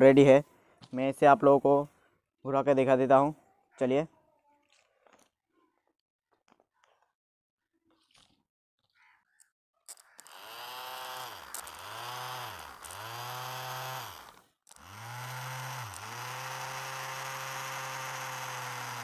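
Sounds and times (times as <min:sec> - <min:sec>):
starter motor whirring: 0:09.9 - 0:19.0.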